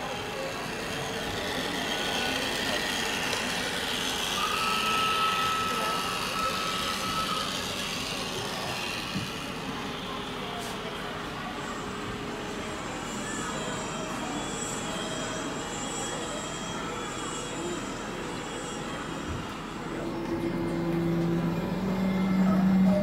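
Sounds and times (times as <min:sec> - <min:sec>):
thin steady tone: 0:00.0 - 0:08.8
model trains running: 0:00.0 - 0:23.0
room hubbub: 0:00.0 - 0:23.0.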